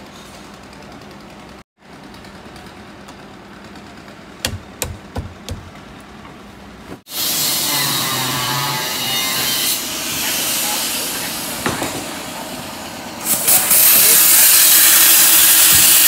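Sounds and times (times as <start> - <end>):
sharp knocks: 4.4 - 5.8
loud steady hiss: 9.8 - 16.0.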